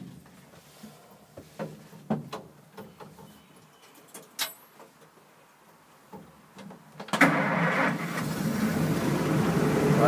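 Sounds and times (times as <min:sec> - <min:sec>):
truck engine starting and running: 0:07.0 - 0:10.0.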